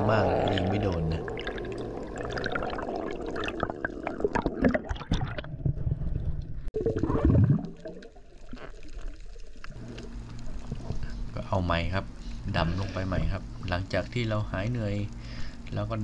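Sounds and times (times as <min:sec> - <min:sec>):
low gurgling surge: 0:00.0 - 0:08.5
underwater gurgling and bubbling: 0:00.0 - 0:11.1.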